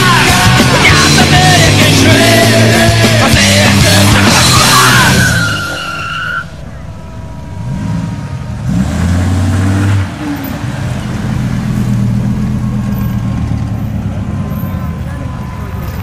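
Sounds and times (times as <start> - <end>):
music: 0.0 - 8.7
car engines driving slowly past: 0.0 - 16.0
high tone sliding down: 1.6 - 11.0.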